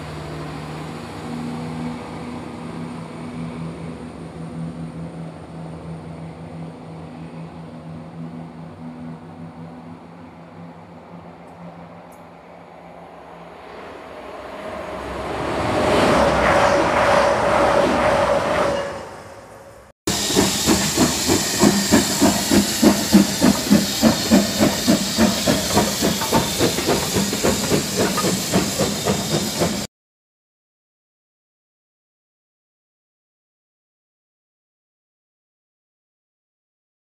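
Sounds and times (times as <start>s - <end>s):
train passing: 0.0s - 29.9s
steam locomotive chuffing: 13.6s - 29.9s
steam hiss: 20.1s - 29.9s.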